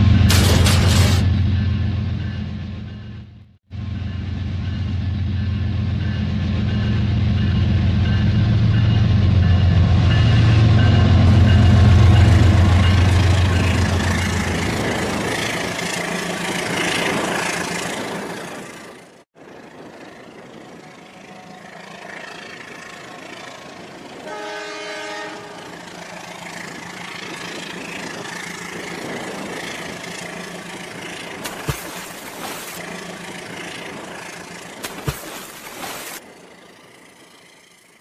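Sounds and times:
train horn: 0:24.2 - 0:26.1
toy train pushing through water: 0:31.3 - 0:36.3.

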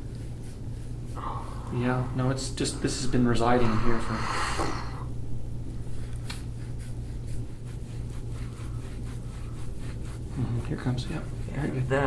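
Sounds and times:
steady low hum: 0:00.0 - 0:12.0
scraping tool on skin: 0:05.8 - 0:12.0.

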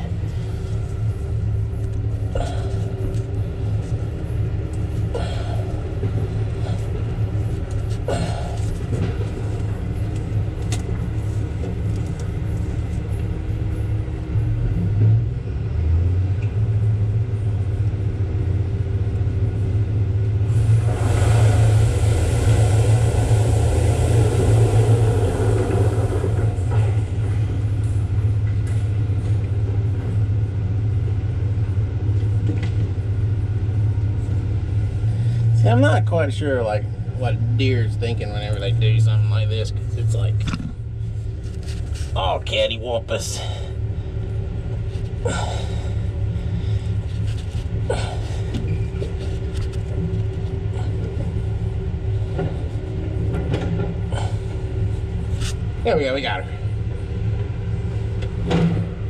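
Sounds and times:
diesel engine rumbling: 0:00.0 - 0:59.0
rushing noise: 0:20.4 - 0:27.8.

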